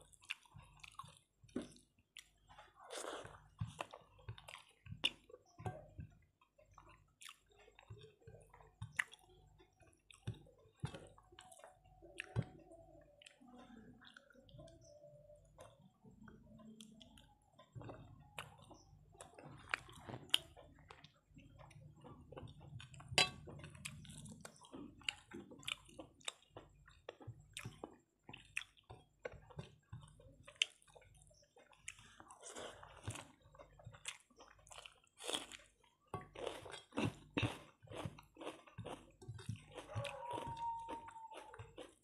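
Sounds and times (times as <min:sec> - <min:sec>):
chewing with wet mouth smacks: 0:00.0 - 0:12.4, 0:15.5 - 0:42.0
rice squishing by hand: 0:25.8 - 0:42.0.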